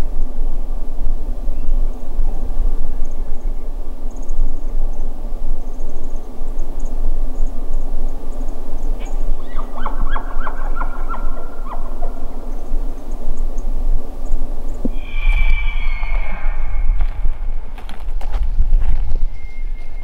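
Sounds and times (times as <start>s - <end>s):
low rumbling hiss: 0.0s - 20.0s
distant elk calling: 9.0s - 12.8s, 14.7s - 18.0s.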